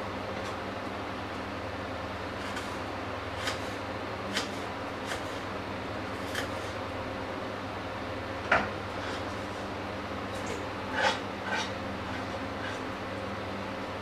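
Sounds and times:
steady background hum: 0.0s - 14.0s
knife chopping on wooden board: 3.4s - 3.7s.

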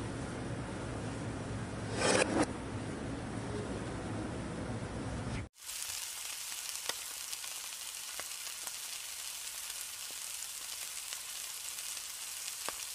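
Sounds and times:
fish sizzling on metal tray: 5.6s - 12.9s.

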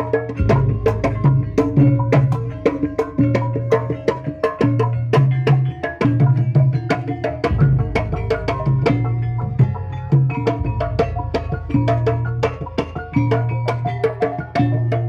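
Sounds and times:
ringing bronze pot gongs: 0.0s - 5.7s, 7.4s - 14.2s
deep drum tones: 0.0s - 15.0s
hand drum strokes: 0.0s - 15.0s
metallophone: 0.0s - 15.0s.

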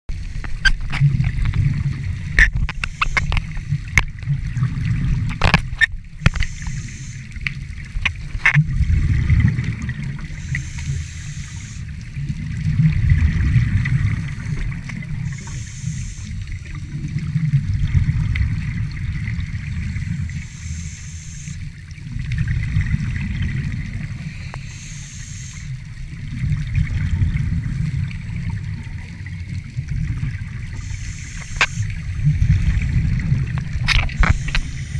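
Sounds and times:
rumbling bubbles: 0.1s - 34.9s
hissing regulator breaths: 6.2s - 7.4s, 10.3s - 12.0s, 14.1s - 16.5s, 20.0s - 21.8s, 24.0s - 25.8s, 30.8s - 32.0s, 34.1s - 34.9s.

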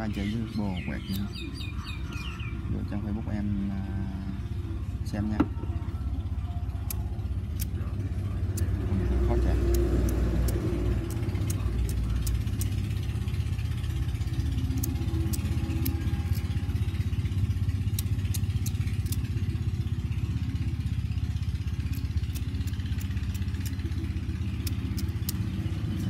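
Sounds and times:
low engine-like drone: 0.0s - 26.0s
lighter flint wheel clicking: 6.8s - 7.8s, 8.5s - 12.9s, 14.0s - 16.8s, 17.8s - 19.4s, 21.7s - 25.7s.

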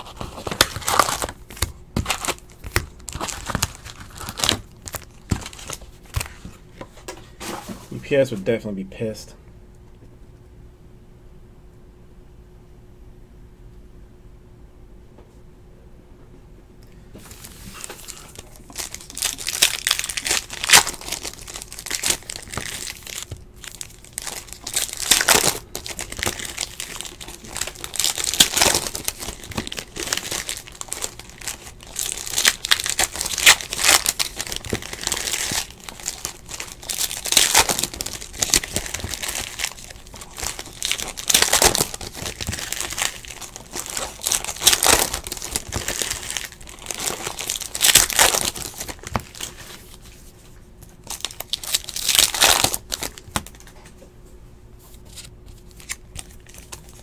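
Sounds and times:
plastic wrappers tearing and crinkling: 0.0s - 6.6s, 17.3s - 50.2s, 50.9s - 53.8s, 54.9s - 57.0s.

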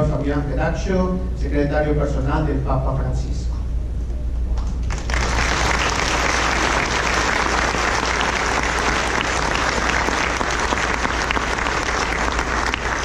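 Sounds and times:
crowd clapping: 4.6s - 13.0s.

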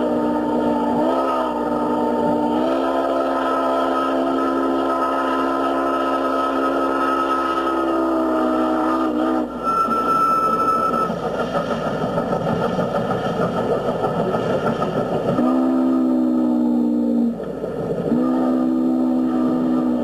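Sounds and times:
steam whistle blasts: 0.0s - 11.1s, 15.4s - 17.3s, 18.1s - 20.0s
steam locomotive running past: 0.0s - 20.0s
brief high tone: 9.6s - 11.1s.

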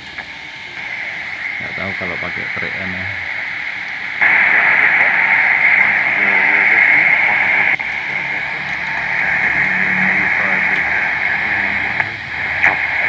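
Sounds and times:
faint weak radio voice: 0.0s - 13.0s
shortwave radio hiss: 0.0s - 13.0s.

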